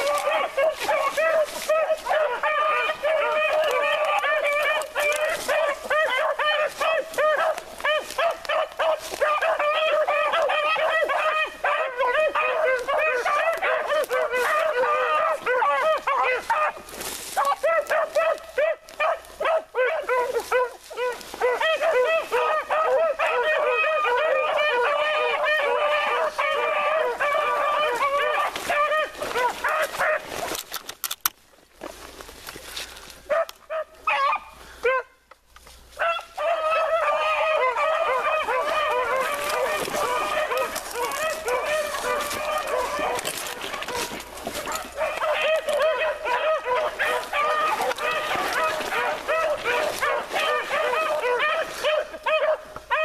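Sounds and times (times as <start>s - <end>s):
brush snapping: 0.0s - 9.4s, 12.4s - 14.8s, 27.3s - 33.6s, 38.3s - 51.8s
dogs baying: 0.0s - 31.2s, 33.3s - 35.2s, 36.0s - 53.0s.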